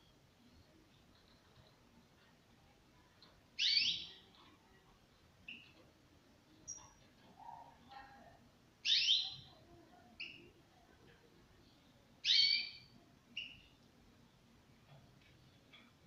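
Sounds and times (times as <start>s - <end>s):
goldfinch short chirp: 8.9s - 9.4s.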